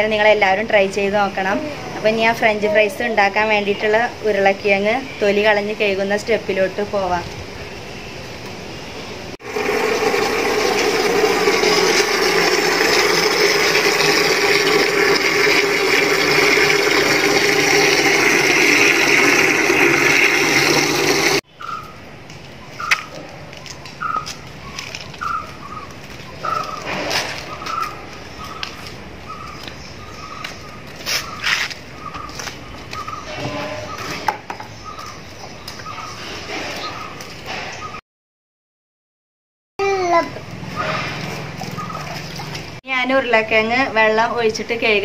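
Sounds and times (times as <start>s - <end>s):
water running from tap: 9.4s - 21.4s
bird chirping: 21.4s - 38.0s.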